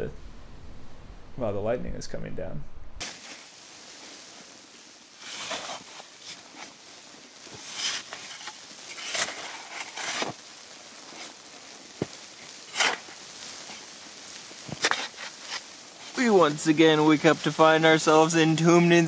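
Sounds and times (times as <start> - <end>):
steady hiss: 0.0 - 19.0
tent fabric flapping in wind: 2.9 - 14.0.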